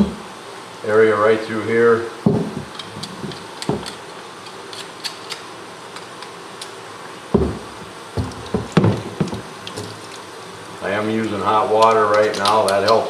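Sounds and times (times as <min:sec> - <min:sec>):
heavy knocks: 0:02.2 - 0:03.9, 0:07.3 - 0:09.9
tool scraping and clicking on bone: 0:02.7 - 0:06.8, 0:11.8 - 0:13.0.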